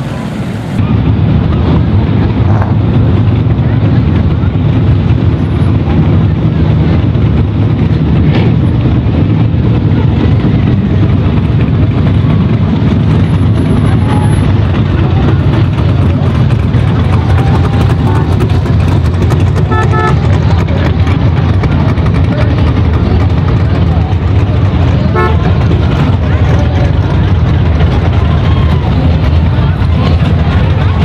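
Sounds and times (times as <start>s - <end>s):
car engines rumbling past: 0.0s - 31.0s
car horn toot: 19.6s - 20.4s, 25.1s - 25.6s.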